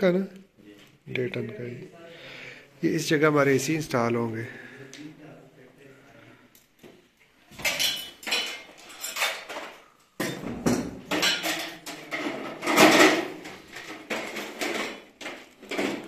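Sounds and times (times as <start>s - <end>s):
metal clattering and clanking: 7.6s - 16.0s.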